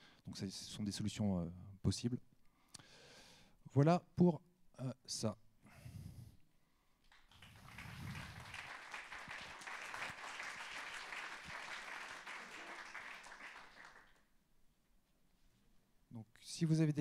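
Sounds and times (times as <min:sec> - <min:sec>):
audience applauding: 0:07.1 - 0:14.3.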